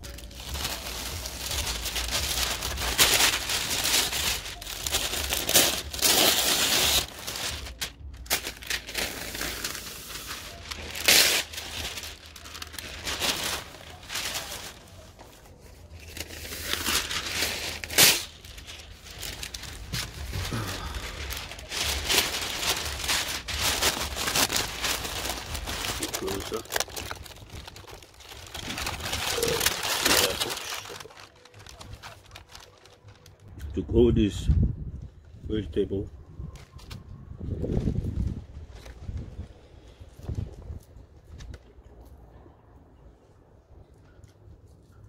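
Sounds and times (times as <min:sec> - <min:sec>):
paper tearing and crinkling: 0:00.0 - 0:33.5.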